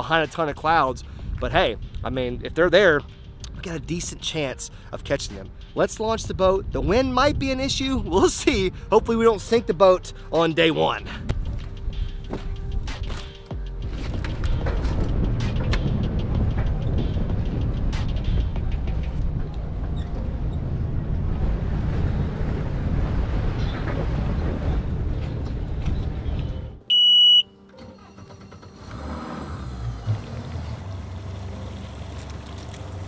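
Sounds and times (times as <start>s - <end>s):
boat trailer road rumble: 13.7s - 26.8s, 27.8s - 33.0s
high electronic beep: 26.9s - 28.2s
outboard motor idling: 28.6s - 33.0s.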